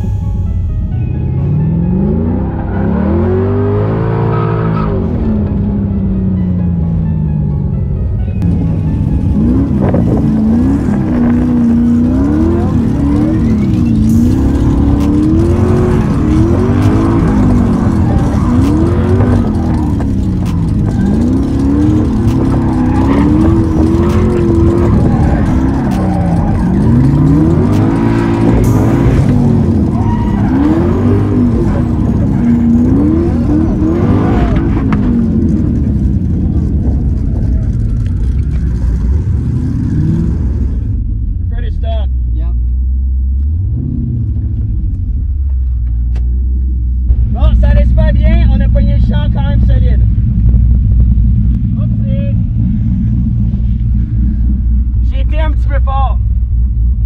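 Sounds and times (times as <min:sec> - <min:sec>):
engine revving: 0:01.2 - 0:05.9, 0:08.4 - 0:41.4, 0:43.0 - 0:46.4
tyre noise: 0:09.6 - 0:40.8.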